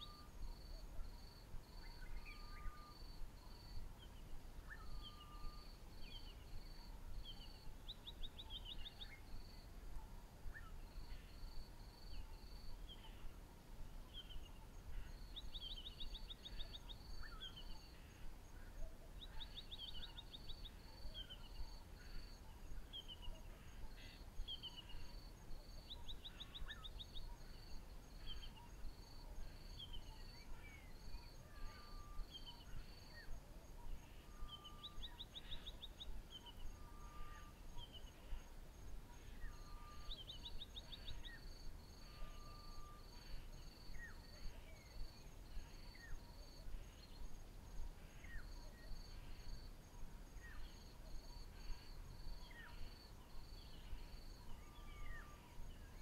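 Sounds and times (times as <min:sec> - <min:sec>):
insects chirping in pulses: 0:00.0 - 0:07.7, 0:19.5 - 0:56.0
birds whistling and trilling: 0:04.7 - 0:06.3.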